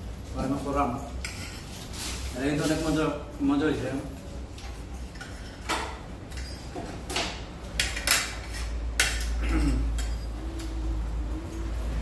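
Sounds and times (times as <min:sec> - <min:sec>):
cutlery clinking on ceramic plates: 0:04.6 - 0:10.4.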